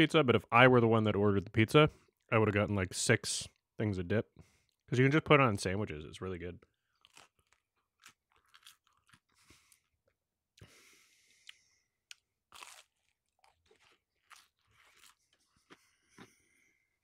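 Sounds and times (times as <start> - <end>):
chewing crunchy pizza crust: 6.7 - 16.7.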